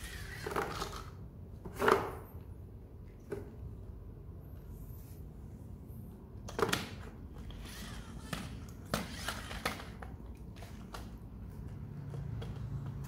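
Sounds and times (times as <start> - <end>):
plastic toy car clattering on tiles: 0.0 - 2.2, 6.5 - 11.2.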